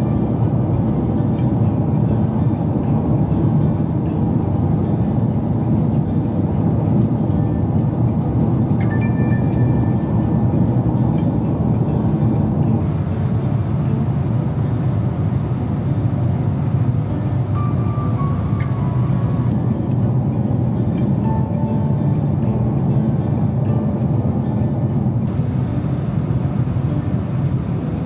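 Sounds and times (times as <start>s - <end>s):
airliner cabin rumble: 10.0s - 20.3s, 25.0s - 28.0s.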